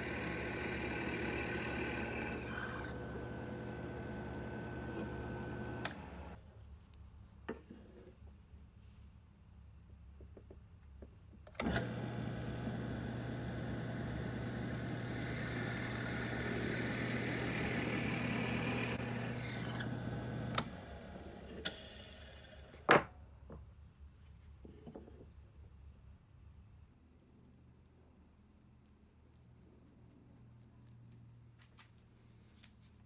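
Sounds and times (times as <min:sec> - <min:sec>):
drill bit boring into wood: 0:00.0 - 0:06.4, 0:11.6 - 0:20.7
drill press motor humming: 0:00.0 - 0:06.4, 0:11.6 - 0:21.2.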